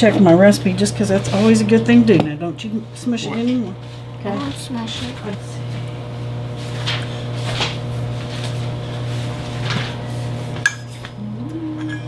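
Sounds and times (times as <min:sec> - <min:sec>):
low hum: 0:11.2 - 0:12.0.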